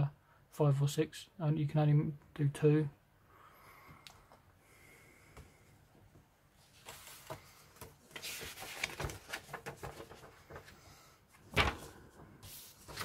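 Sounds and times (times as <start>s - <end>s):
paper rustling and crinkling: 6.6s - 13.0s.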